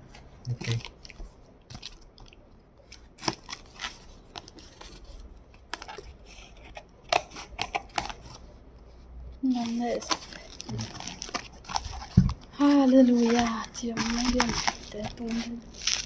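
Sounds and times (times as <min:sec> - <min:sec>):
packing tape rasping: 0:09.4 - 0:16.0.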